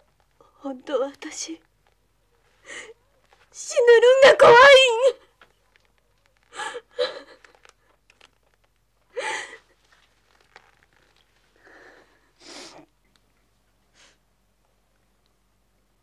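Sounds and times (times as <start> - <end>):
woman sobbing: 6.5 - 7.7, 9.1 - 9.8.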